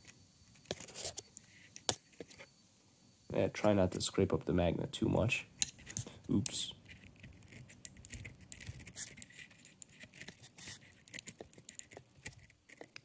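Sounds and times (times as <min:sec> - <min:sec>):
knife scraping plastic: 0:06.8 - 0:13.0.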